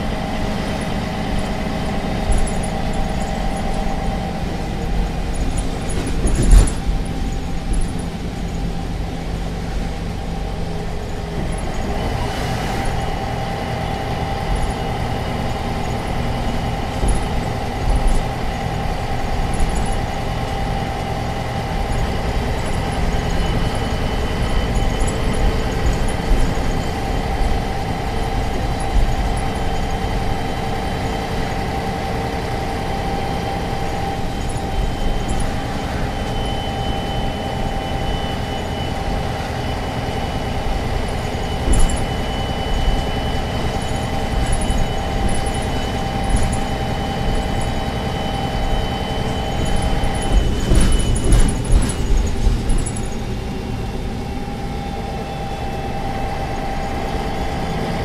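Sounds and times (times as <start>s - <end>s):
bus diesel engine running: 0.0s - 58.0s.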